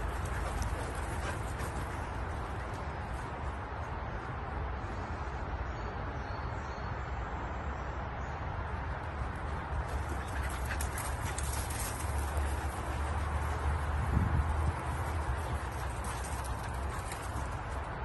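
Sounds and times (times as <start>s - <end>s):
dog galloping on grass: 0.0s - 3.4s, 9.2s - 18.0s.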